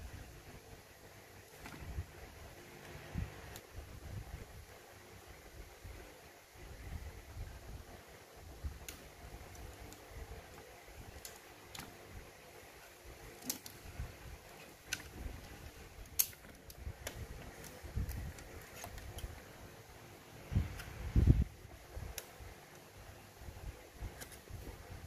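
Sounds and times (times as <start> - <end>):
handling noise on plastic parts: 1.4 - 2.1, 8.8 - 19.6
small sharp clicks: 16.0 - 19.4.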